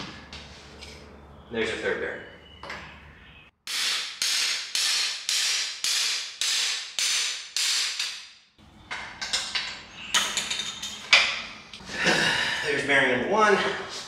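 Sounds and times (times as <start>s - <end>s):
hammer striking metal bar: 3.7s - 8.4s.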